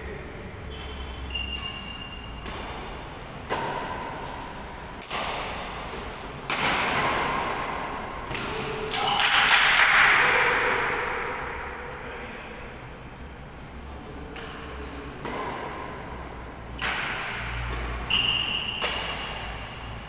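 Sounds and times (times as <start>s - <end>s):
rackets striking shuttlecock: 1.3s - 10.2s, 14.3s - 16.0s, 16.7s - 20.0s.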